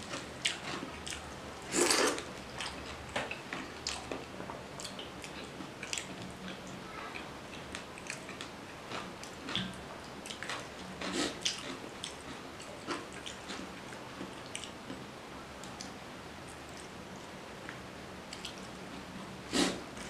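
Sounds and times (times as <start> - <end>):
wet chewing: 0.1 - 14.8.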